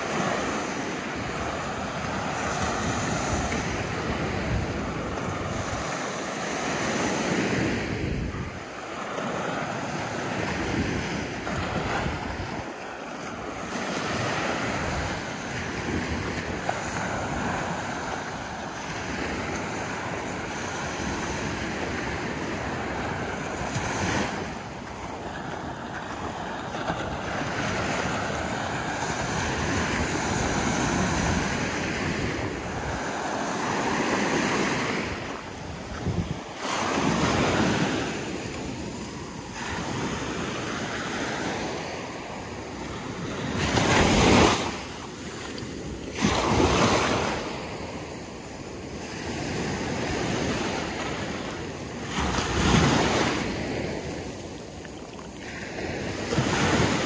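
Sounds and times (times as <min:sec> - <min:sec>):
wind buffeting microphone: 0:00.0 - 0:06.1, 0:07.2 - 0:08.8, 0:10.1 - 0:40.4
small waves breaking on sand: 0:00.0 - 0:57.0.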